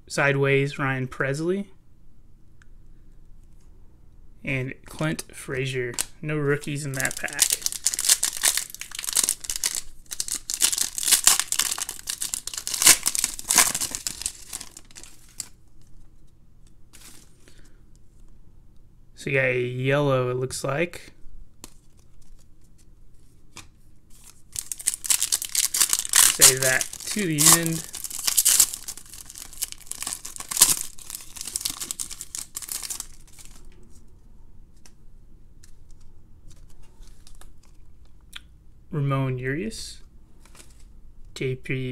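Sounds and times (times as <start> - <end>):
wrapper rustling: 6.6 - 16.3, 24.1 - 34.0
foil wrapper crinkling: 6.7 - 15.9, 24.2 - 33.7.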